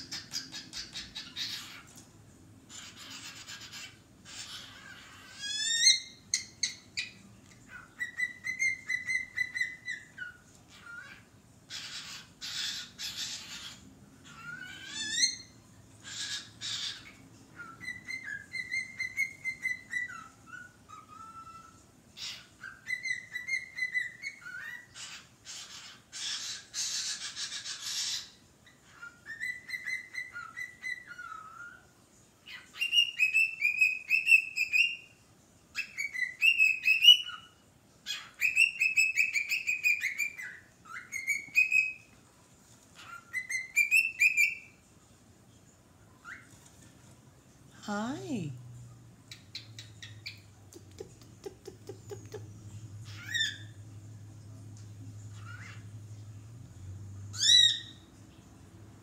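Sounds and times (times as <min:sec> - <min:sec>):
cockatiel screeching calls: 0:02.7 - 0:06.8, 0:07.7 - 0:31.8, 0:38.1 - 0:42.0, 0:53.1 - 0:53.7, 0:55.3 - 0:55.8, 0:57.4 - 0:58.0
cockatiel whistling: 0:02.8 - 0:13.7, 0:38.1 - 0:42.0, 0:43.0 - 0:44.7.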